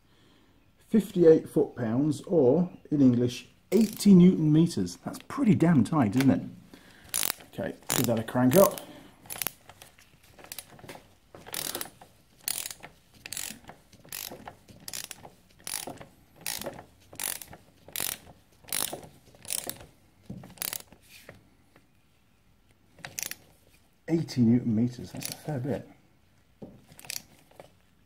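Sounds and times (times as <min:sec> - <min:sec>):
ratchet wrench clicking: 0:03.8 - 0:04.1, 0:07.1 - 0:09.6, 0:11.5 - 0:19.9, 0:20.5 - 0:20.9, 0:23.0 - 0:23.4, 0:25.2 - 0:25.5, 0:27.0 - 0:27.3.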